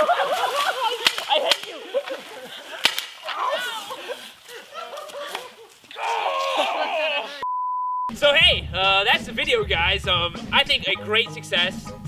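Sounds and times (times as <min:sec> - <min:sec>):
men shouting: 0:03.2 - 0:04.2, 0:05.9 - 0:07.4.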